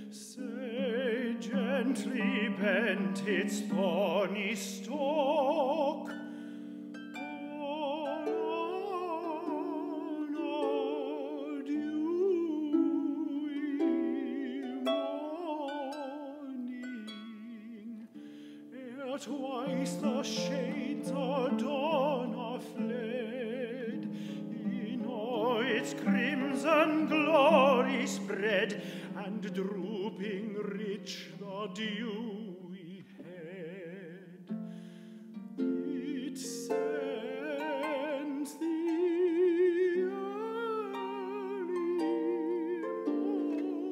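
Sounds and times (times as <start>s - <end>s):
tenor voice singing: 0.0s - 6.2s, 7.2s - 34.5s, 35.6s - 43.9s
plucked harp: 0.0s - 43.9s.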